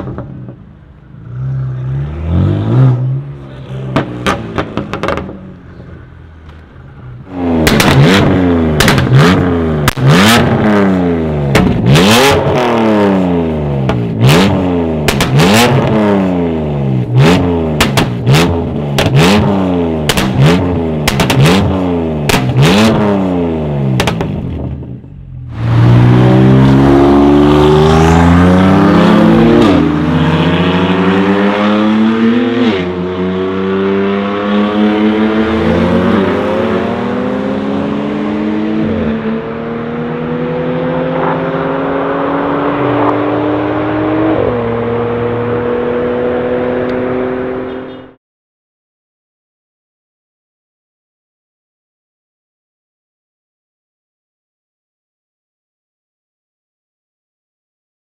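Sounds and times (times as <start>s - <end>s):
car engine revving: 0.0s - 48.1s
car accelerating hard: 1.2s - 6.0s, 7.0s - 24.1s, 25.5s - 47.9s.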